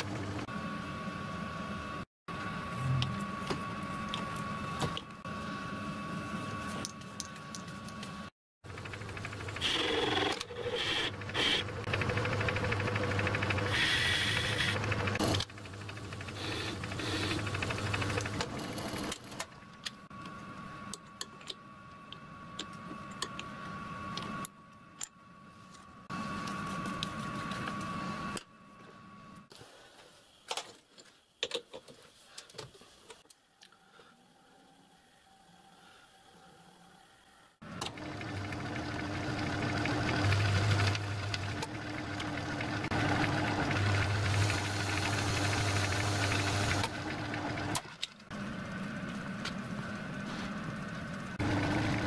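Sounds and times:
metal lathe running: 37.9s - 47.8s.

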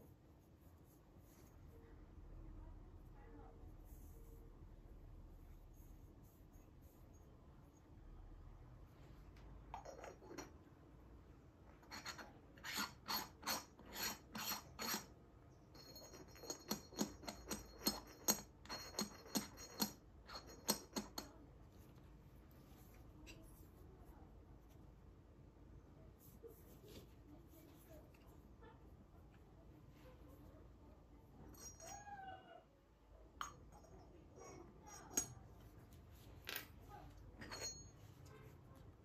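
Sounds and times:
clay lid scraping clay pot: 11.8s - 15.1s.

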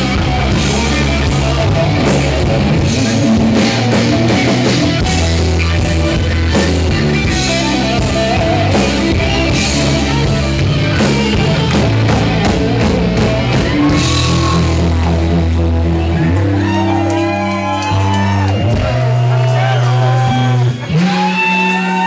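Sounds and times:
drums with cymbal hits: 0.0s - 15.6s
bass notes: 0.0s - 22.0s
electric guitar lines: 0.0s - 22.0s.

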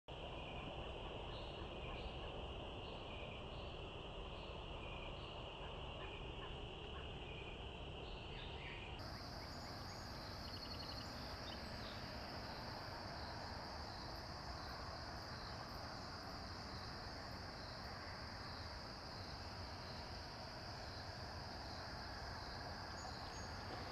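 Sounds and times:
low background hiss: 0.1s - 23.9s
crickets trilling: 8.9s - 23.9s
high-pitched insect trill: 9.0s - 23.9s.

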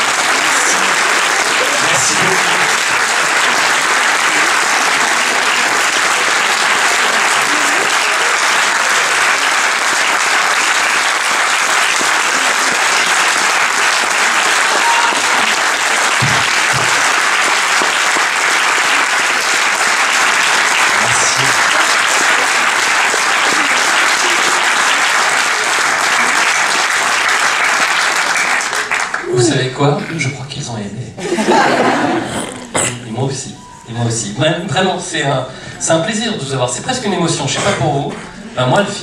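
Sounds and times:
audience applauding: 0.0s - 30.2s.

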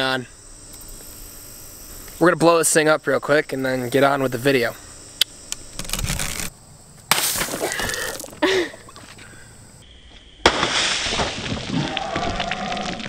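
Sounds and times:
watermelon bursting and splattering: 7.1s - 8.4s, 10.4s - 13.0s.

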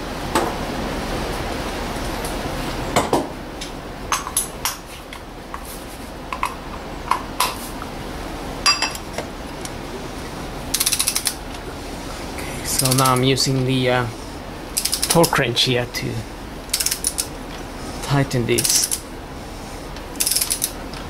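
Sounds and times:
wrench ratchet clicking: 10.8s - 11.4s, 14.8s - 15.2s, 16.7s - 17.3s, 18.6s - 19.0s, 20.2s - 20.7s.

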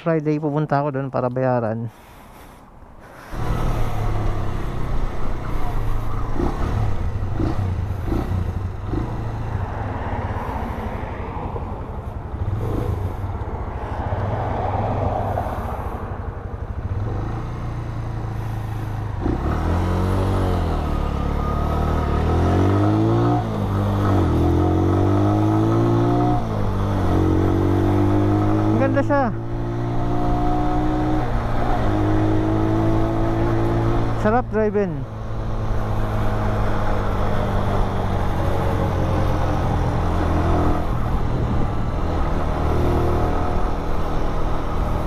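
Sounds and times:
motorcycle engine running: 3.2s - 9.9s.

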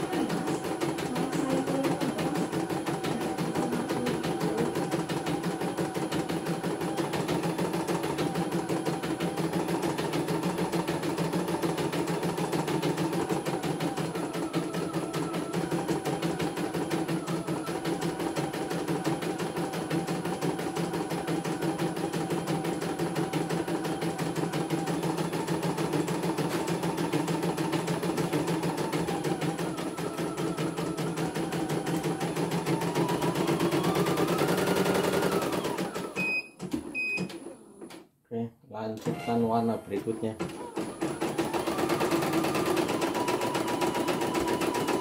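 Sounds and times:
embroidery machine stitching: 0.0s - 38.0s, 39.0s - 45.0s.

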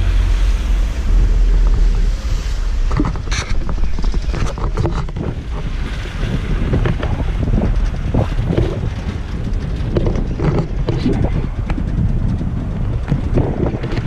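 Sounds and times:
engine running low rumble: 0.0s - 14.0s
knocks and clatters: 2.8s - 14.0s.

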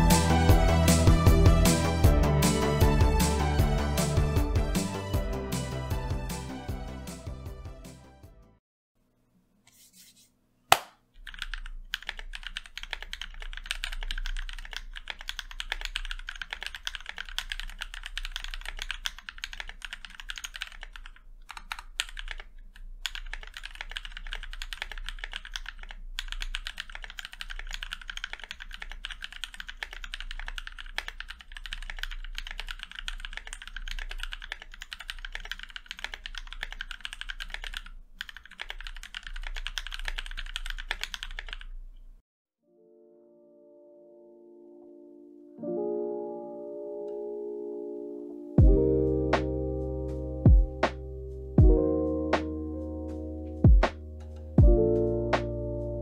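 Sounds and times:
fast mechanical keyboard typing: 11.2s - 41.8s.

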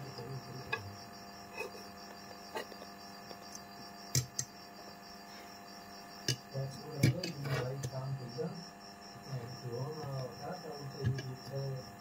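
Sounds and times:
faint electrical mains hum: 0.0s - 12.0s.

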